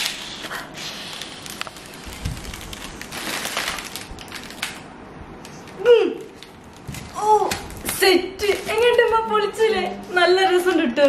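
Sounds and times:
foil balloon crinkling: 0.0 - 4.8, 6.3 - 9.8.

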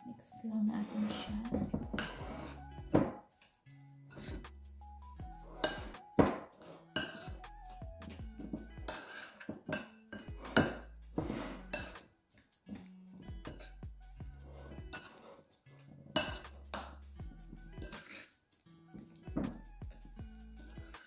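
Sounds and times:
faint background music: 0.0 - 21.0
utensil scraping mixing bowl: 0.8 - 2.6, 8.5 - 9.6, 10.2 - 12.0, 14.6 - 15.5.

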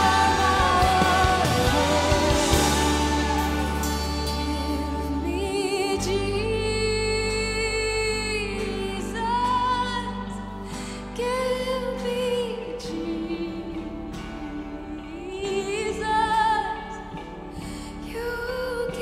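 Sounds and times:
band accompaniment with bass: 0.0 - 10.7
woman singing: 0.0 - 19.0.

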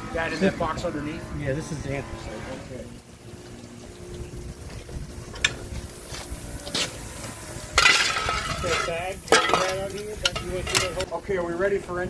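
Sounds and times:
coal clinking on metal: 7.7 - 11.1
shovel scraping rattle: 7.7 - 11.1.

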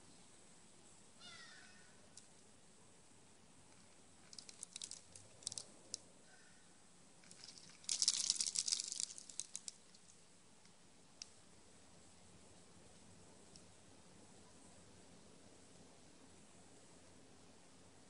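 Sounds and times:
seeds and shells clicking: 3.7 - 6.1, 7.2 - 11.4.

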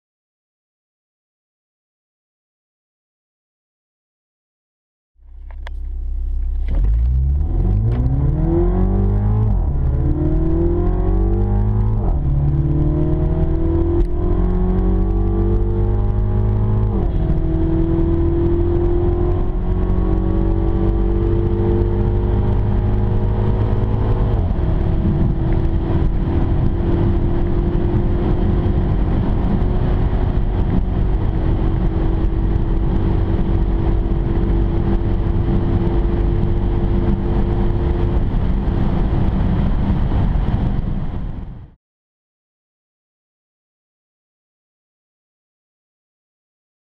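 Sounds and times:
car engine accelerating: 5.2 - 41.8.

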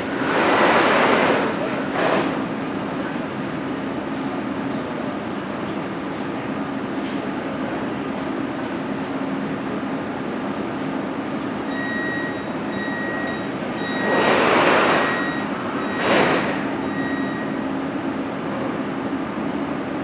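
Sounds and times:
high warning beeps: 11.6 - 17.8
train doors hissing shut: 16.0 - 16.8.

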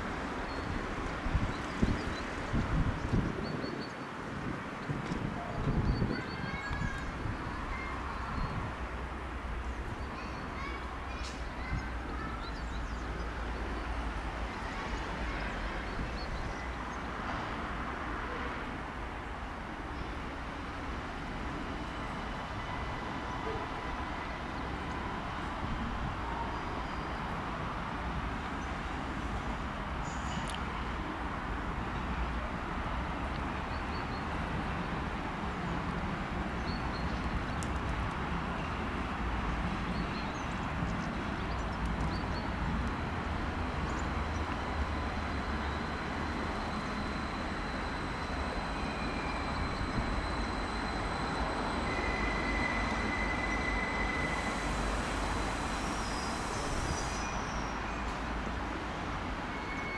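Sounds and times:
electric train rumbling in: 4.2 - 59.9
brief high squeal: 46.7 - 58.3, 59.5 - 59.9.

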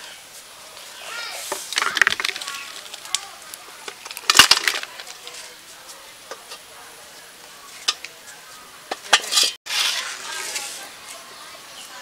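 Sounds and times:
eggs knocking together: 1.8 - 3.2.

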